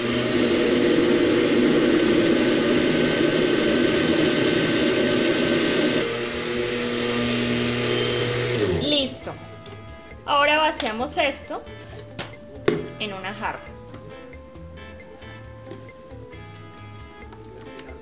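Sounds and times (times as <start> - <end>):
blender running: 0.0 - 9.1.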